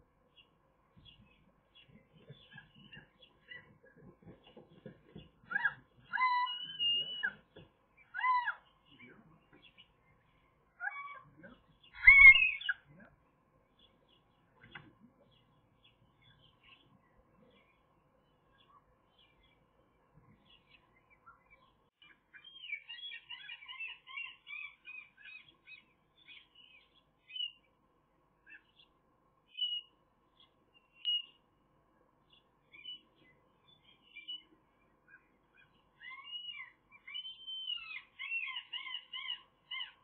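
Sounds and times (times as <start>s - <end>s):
birds chirping: 0.0s - 40.0s
faint steady hum: 0.0s - 40.0s
whistled bird notes: 12.0s - 12.8s, 30.9s - 31.4s, 35.1s - 40.0s.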